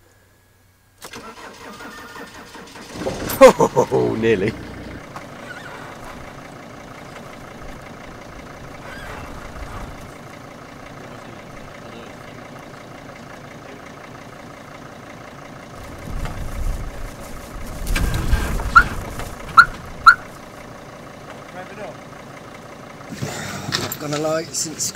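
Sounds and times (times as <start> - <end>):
van engine idling: 0.0 - 24.9
low rumble: 15.8 - 20.9.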